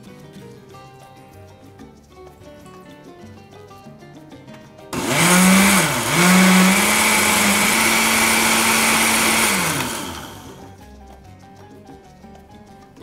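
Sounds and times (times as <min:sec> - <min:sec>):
blender running: 0:05.0 - 0:10.7.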